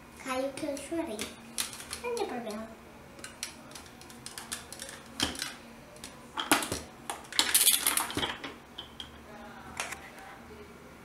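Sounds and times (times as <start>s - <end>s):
plastic toy parts clicking: 3.2s - 6.8s.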